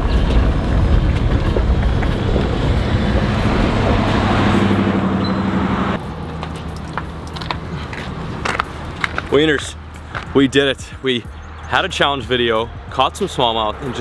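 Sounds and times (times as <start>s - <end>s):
rushing wind: 0.0s - 6.4s
boat motor running: 0.2s - 7.4s.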